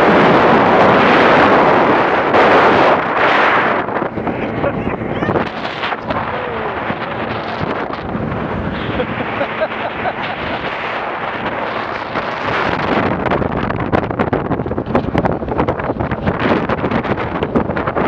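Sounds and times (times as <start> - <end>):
boat engine running: 0.0 - 18.0
rush of hull and wake: 0.0 - 18.0
wind buffeting microphone: 0.0 - 18.0.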